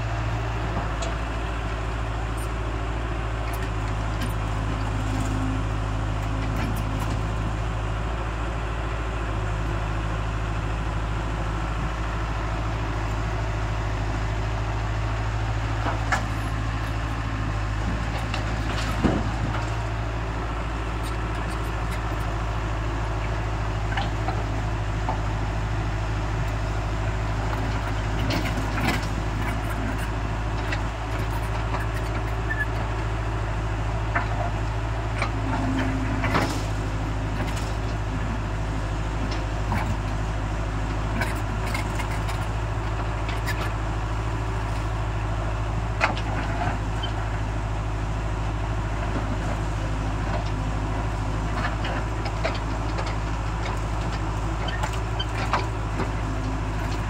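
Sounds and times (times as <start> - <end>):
diesel excavator engine running: 0.0 - 57.0.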